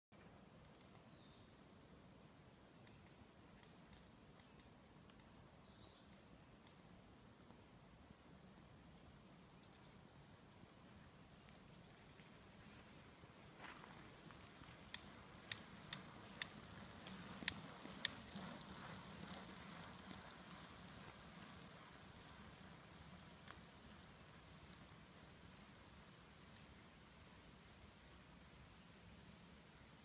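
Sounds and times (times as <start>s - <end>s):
faint rain hiss: 0.2s - 30.0s
sharp clicks: 2.8s - 5.4s
bicycle tyres swishing on wet asphalt: 10.4s - 30.0s.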